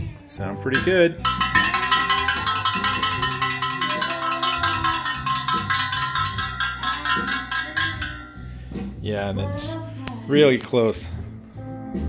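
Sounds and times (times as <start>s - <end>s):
metallic pings of struck spokes: 0.8s - 9.1s.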